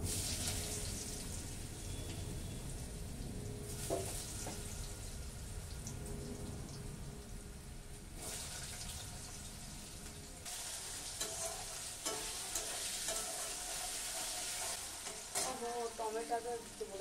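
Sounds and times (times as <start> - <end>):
potatoes sizzling in hot oil: 0.0 - 3.0, 3.6 - 17.0
metal spatula scraping pan: 10.7 - 15.9.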